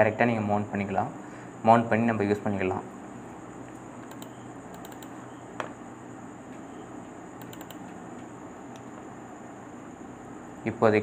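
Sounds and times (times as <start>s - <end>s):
computer mouse click: 4.0s - 5.8s, 7.4s - 9.0s.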